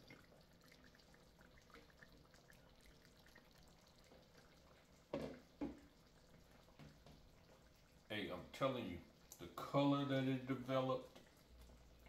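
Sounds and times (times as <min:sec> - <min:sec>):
pot simmering and bubbling: 0:00.0 - 0:12.0.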